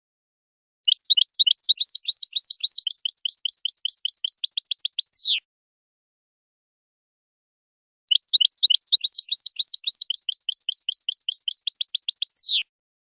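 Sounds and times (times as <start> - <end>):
finch singing high twitters: 0.9 - 5.4, 8.1 - 12.7.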